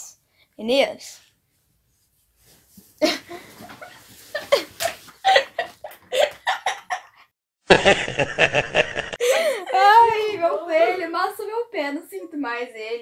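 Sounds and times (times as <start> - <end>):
young people laughing: 3.0 - 11.0
old man laughing: 4.4 - 10.3.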